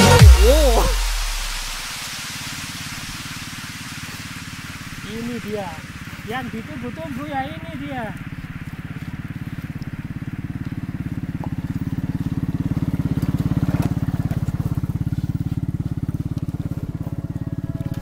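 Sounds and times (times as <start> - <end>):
rush of noise: 0.0 - 10.9
small engine running: 2.1 - 18.0.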